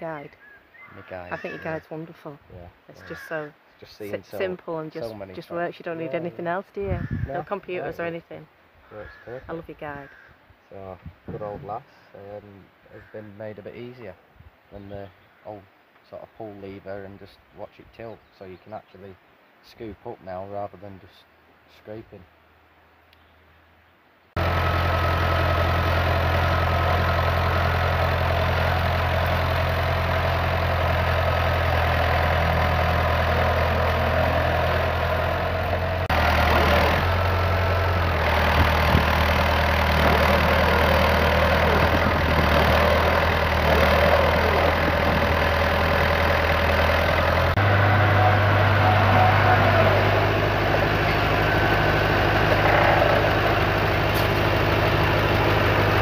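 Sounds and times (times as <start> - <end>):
tractor engine running: 24.4 - 56.0
loader bucket digging soil: 33.1 - 46.1, 47.5 - 56.0.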